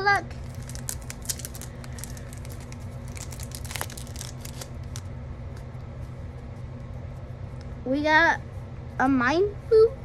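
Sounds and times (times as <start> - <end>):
low steady hum: 0.0 - 10.0
foil wrapper crinkling: 0.4 - 5.1.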